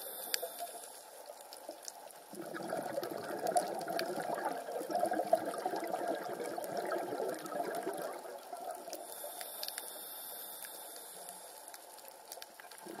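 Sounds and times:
faint clicks: 0.0s - 2.3s, 8.9s - 13.0s
underwater bubbling: 0.0s - 13.0s.

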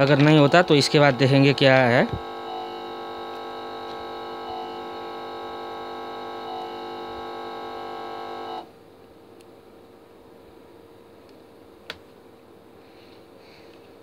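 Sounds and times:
steady drone of held tones: 0.0s - 8.7s.

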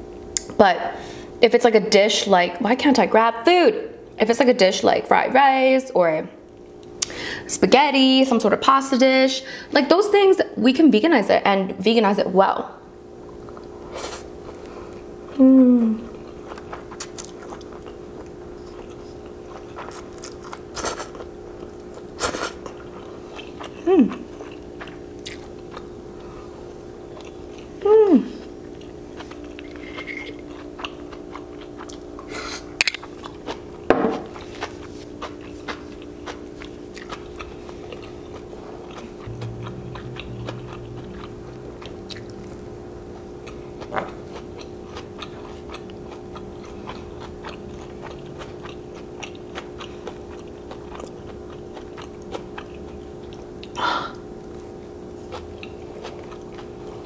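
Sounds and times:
faint steady hum: 0.0s - 57.0s
chewing with wet mouth clicks: 16.1s - 25.9s, 27.1s - 27.7s, 28.4s - 53.8s, 54.4s - 57.0s.

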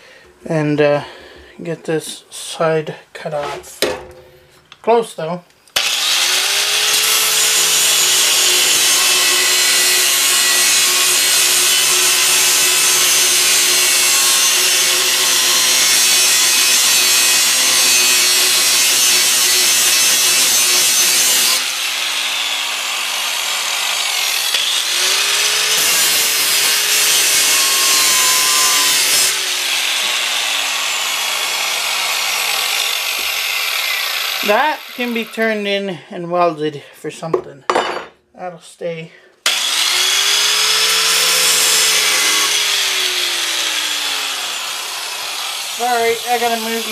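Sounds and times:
angle grinder cutting steel: 5.8s - 35.6s, 39.4s - 46.9s.

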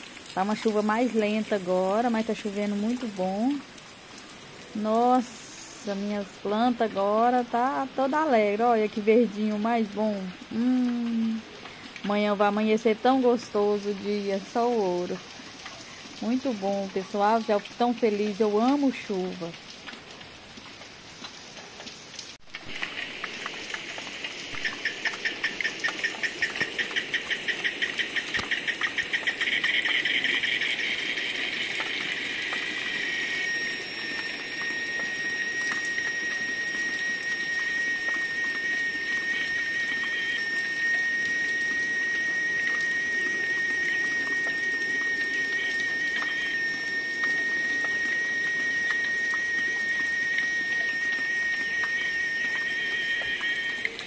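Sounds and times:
light rain: 0.0s - 54.0s
insect buzzing call: 5.2s - 6.2s, 22.7s - 53.9s.

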